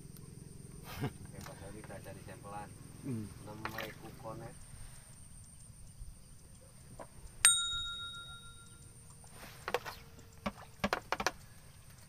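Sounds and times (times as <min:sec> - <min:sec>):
fishing rod bell ringing: 0:07.4 - 0:08.8.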